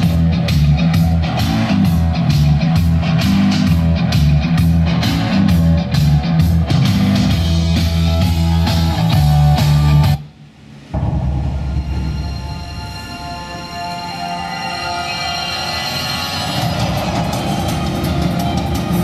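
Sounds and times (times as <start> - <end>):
rock music from car stereo: 0.0 - 10.2, 14.2 - 19.0.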